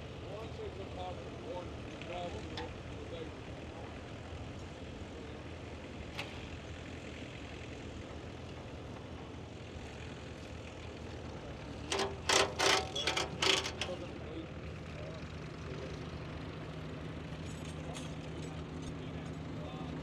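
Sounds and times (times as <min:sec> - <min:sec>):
tractor engine idling: 0:06.5 - 0:17.4.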